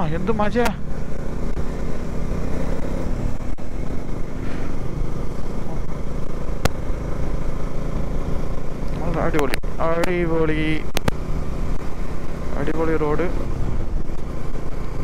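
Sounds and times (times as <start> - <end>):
motorcycle engine running: 0.0 - 15.0
sharp click: 10.9 - 11.2.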